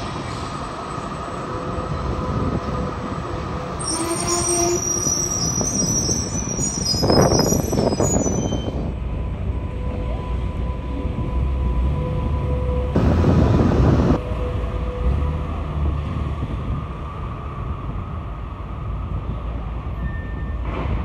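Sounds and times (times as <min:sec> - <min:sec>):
tram wheels squealing: 0:00.0 - 0:12.9, 0:19.3 - 0:20.8
wheels rumbling on rails: 0:00.0 - 0:21.0.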